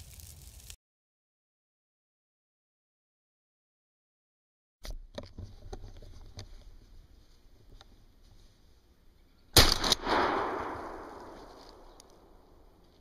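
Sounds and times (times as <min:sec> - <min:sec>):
gunshot echoing through woods: 0:09.6 - 0:12.7.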